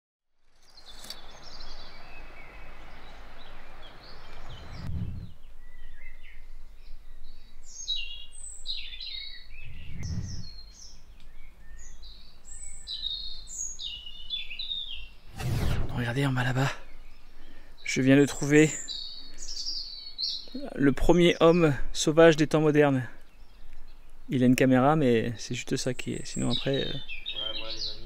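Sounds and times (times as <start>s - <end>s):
small birds chirping: 0.4s - 28.0s
low rumble: 4.4s - 5.5s, 9.6s - 10.6s.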